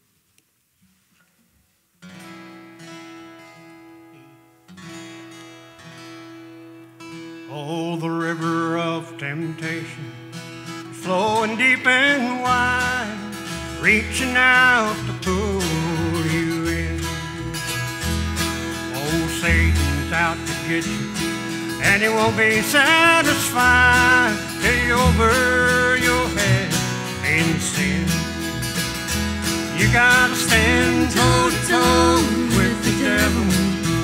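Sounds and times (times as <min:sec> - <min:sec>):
strummed acoustic guitar chords: 0:02.0 - 0:34.0
upright bass: 0:10.9 - 0:34.0.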